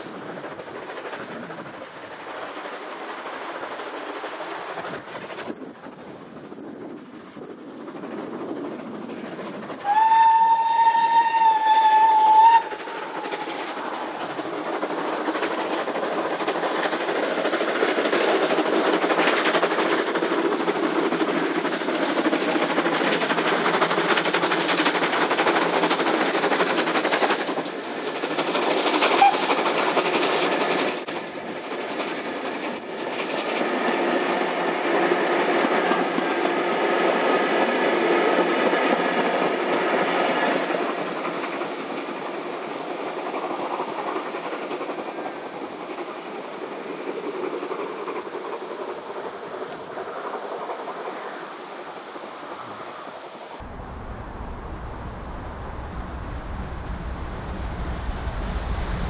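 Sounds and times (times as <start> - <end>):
carriages rolling on rails: 0.0 - 52.4, 53.6 - 59.0
steam locomotive working past: 0.0 - 59.0
steam locomotive whistle: 9.8 - 12.8, 29.2 - 29.5.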